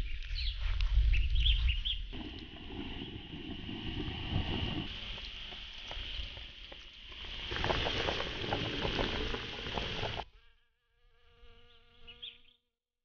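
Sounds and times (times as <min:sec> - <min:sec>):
stew boiling and bubbling: 0:01.9 - 0:10.3.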